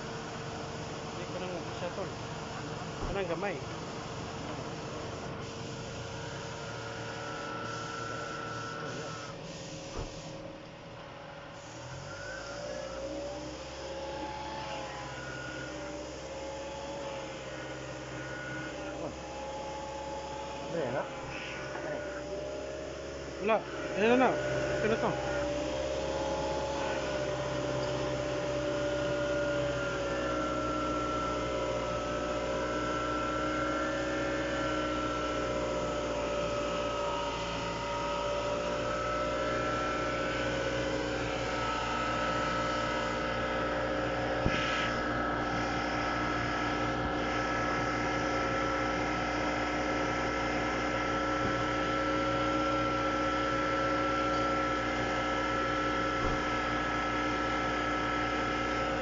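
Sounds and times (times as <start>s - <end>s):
car engine idling: 0.0s - 5.2s.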